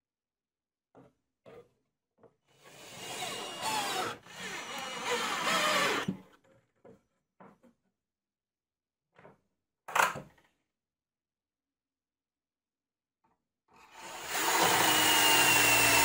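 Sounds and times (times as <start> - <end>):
screw creaking into plywood: 2.8 - 6.2.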